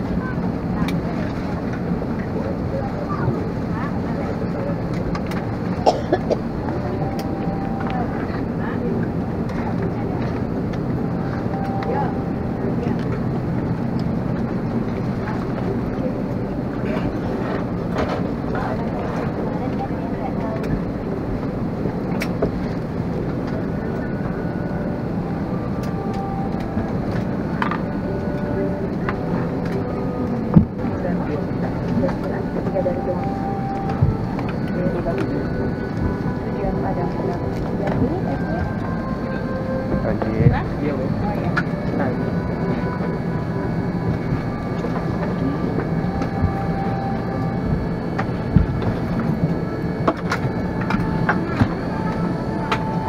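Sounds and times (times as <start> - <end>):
airliner cabin rumble and hiss: 0.0 - 53.0.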